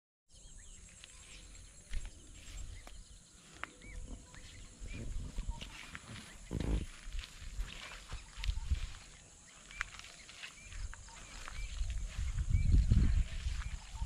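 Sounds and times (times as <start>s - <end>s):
birds chirping: 0.3s - 14.0s
footsteps through vegetation: 0.6s - 14.0s.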